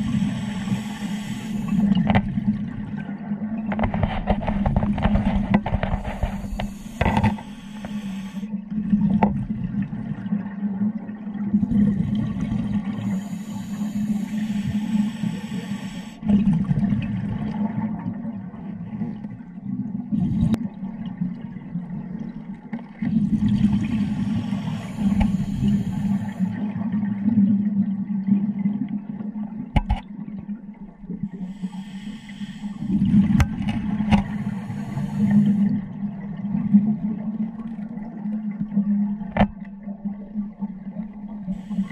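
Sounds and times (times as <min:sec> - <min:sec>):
regulator breathing underwater: 0:00.0 - 0:02.2, 0:04.2 - 0:08.5, 0:12.1 - 0:16.3, 0:23.3 - 0:26.7, 0:31.3 - 0:36.0, 0:41.4 - 0:41.9
low water rumble: 0:00.0 - 0:41.9.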